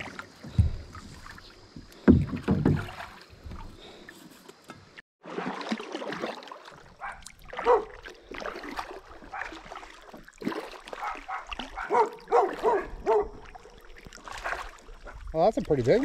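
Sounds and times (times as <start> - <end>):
dog barking: 7.0 - 8.0, 9.3 - 9.6, 11.0 - 13.4.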